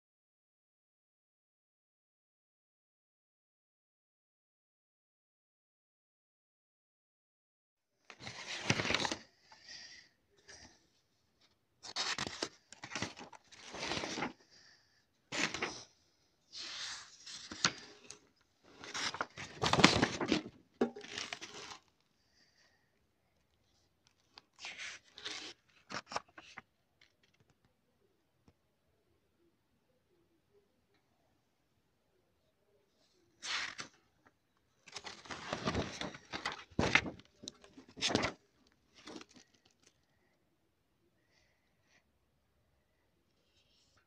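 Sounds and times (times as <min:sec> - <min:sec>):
paper pages rustling and turning: 0:08.1 - 0:10.8, 0:11.4 - 0:22.0, 0:24.0 - 0:27.6, 0:33.4 - 0:39.9.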